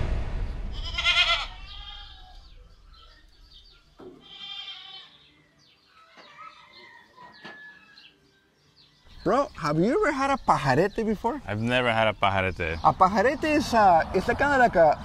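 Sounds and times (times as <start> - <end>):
deep boom: 0.0 - 3.6
goats bleating: 0.8 - 2.3, 4.2 - 5.3.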